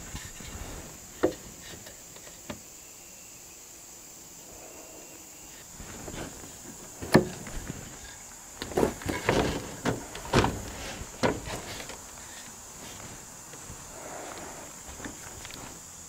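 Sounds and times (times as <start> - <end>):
wooden lumber knocks: 6.9 - 8.0, 8.6 - 12.5.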